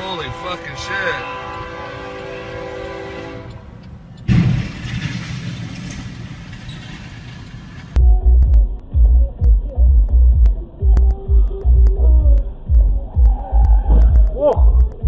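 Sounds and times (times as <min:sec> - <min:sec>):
train horn: 0:00.0 - 0:03.7
loud bang with noisy rush: 0:04.3 - 0:07.8
electronic music with thumping beat: 0:08.0 - 0:15.0.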